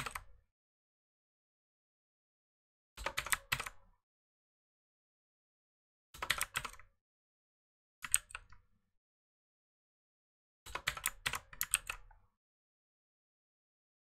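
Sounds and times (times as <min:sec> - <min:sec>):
typing on keyboard: 0:00.0 - 0:00.2, 0:03.0 - 0:03.8, 0:06.2 - 0:06.9, 0:08.0 - 0:08.5, 0:10.7 - 0:12.1.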